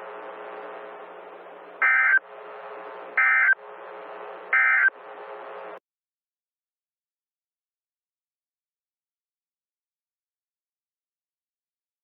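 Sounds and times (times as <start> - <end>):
radio static hiss and hum: 0.0 - 5.8.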